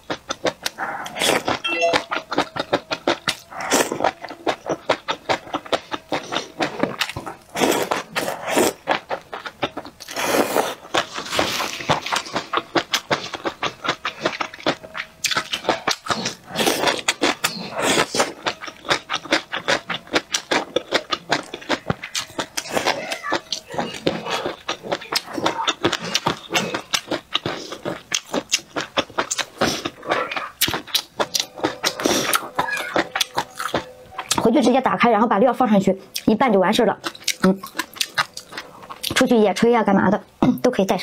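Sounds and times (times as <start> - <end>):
crunchy chewing: 0.0 - 34.6, 36.1 - 39.2
person slurping noodles: 7.5 - 8.8.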